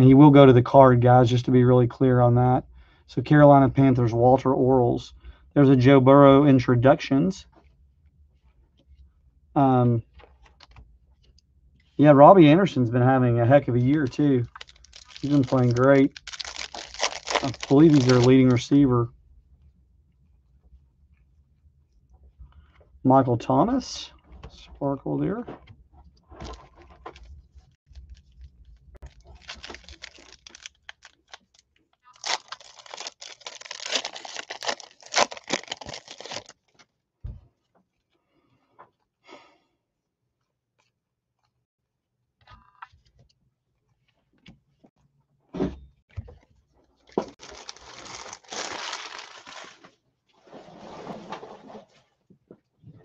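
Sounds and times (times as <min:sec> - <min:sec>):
plastic wrappers crinkling and tearing: 0:13.9 - 0:18.8, 0:27.9 - 0:36.9, 0:47.2 - 0:50.0.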